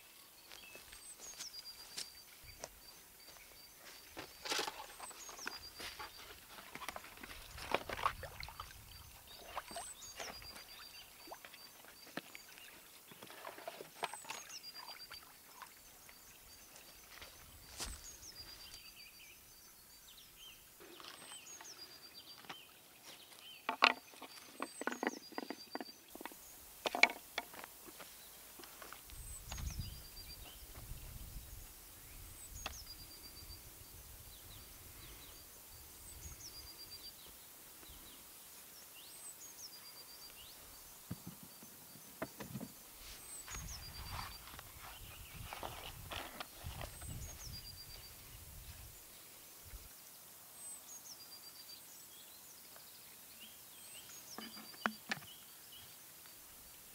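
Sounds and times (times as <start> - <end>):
small bird singing: 8.5 - 13.2, 14.0 - 26.7, 27.9 - 49.4
rustling in dry grass: 16.7 - 18.9, 42.9 - 49.0.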